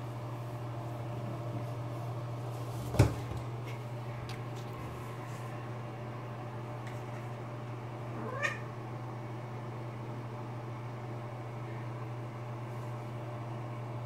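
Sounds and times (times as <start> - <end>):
cat meowing: 8.1 - 8.7.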